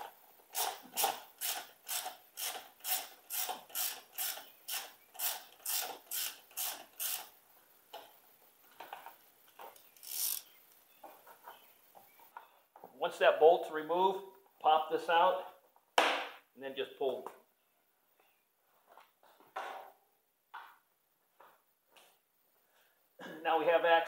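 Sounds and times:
ratchet wrench clicking: 0.5 - 7.3, 9.8 - 10.5.

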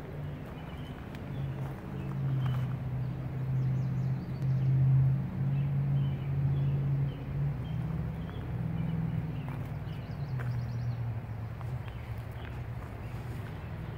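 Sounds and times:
low engine hum: 0.0 - 13.9.

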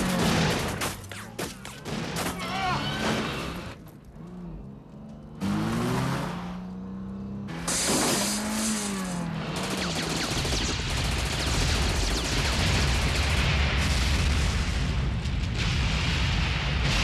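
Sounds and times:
rapid gunfire: 0.0 - 3.6, 7.6 - 17.0
car engine revving: 1.6 - 11.1.

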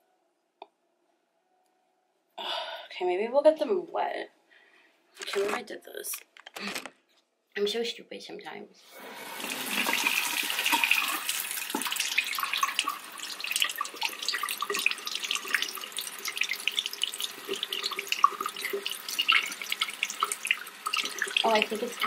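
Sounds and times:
faucet water splashing on hand: 9.3 - 22.0.

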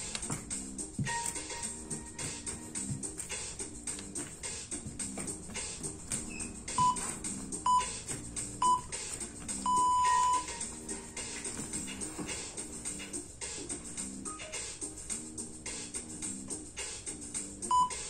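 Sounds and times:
background music: 0.0 - 18.0
interval timer beeps: 6.8 - 7.0, 7.7 - 7.9, 9.6 - 10.6, 17.7 - 18.0.

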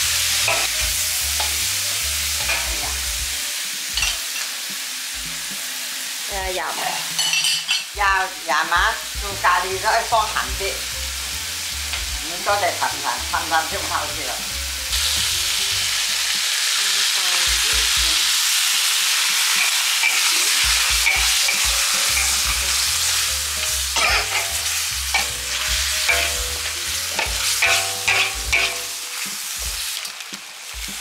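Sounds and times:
chicken sizzling in a pan: 0.0 - 31.0
utensil scraping and knocking pan: 24.0 - 28.9.

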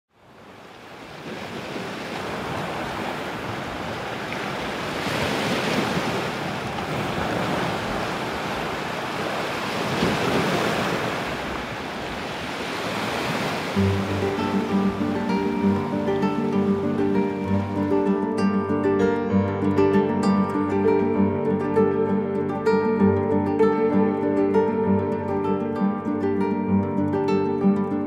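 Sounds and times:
sea waves breaking: 0.1 - 28.0
acoustic guitar music: 13.8 - 28.0.

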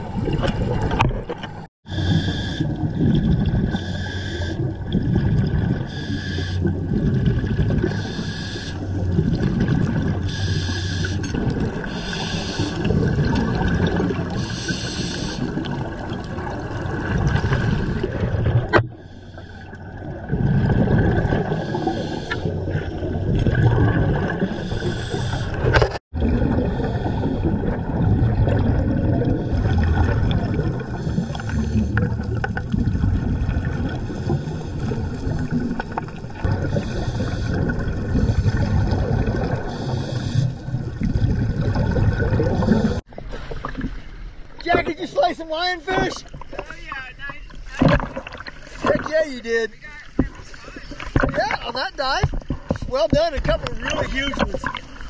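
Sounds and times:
gurgling exhaled bubbles: 0.0 - 44.6, 47.8 - 49.2
regulator inhale hiss: 1.9 - 2.8, 3.8 - 4.6, 5.9 - 6.7, 7.9 - 8.8, 10.3 - 11.2, 11.8 - 12.9, 14.4 - 15.5, 21.6 - 22.6, 24.5 - 25.6, 36.8 - 37.7, 39.7 - 40.6.

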